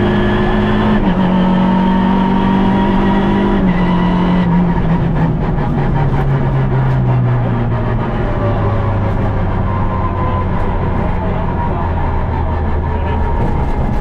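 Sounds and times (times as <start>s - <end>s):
rally car engine running hard: 0.0s - 14.0s.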